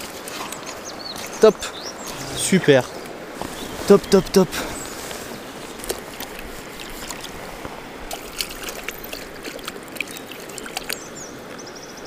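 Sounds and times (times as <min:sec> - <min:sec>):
stream running over stones: 0:00.0 - 0:12.0
hands splashing in water: 0:05.6 - 0:11.0.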